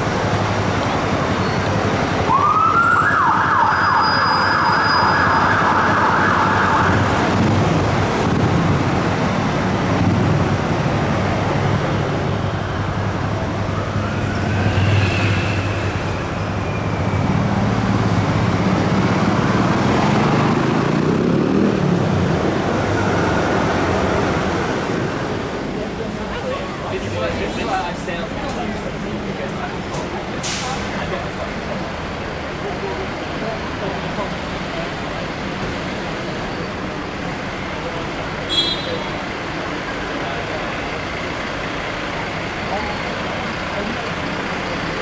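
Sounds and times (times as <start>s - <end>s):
heavy city traffic: 0.0s - 45.0s
fire engine siren: 1.7s - 7.5s, 13.3s - 17.0s, 22.8s - 24.0s
diesel engine rumble: 7.0s - 45.0s.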